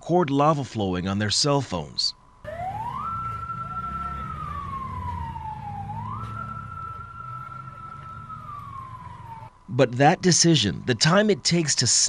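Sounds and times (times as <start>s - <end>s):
siren wailing: 2.4s - 9.6s.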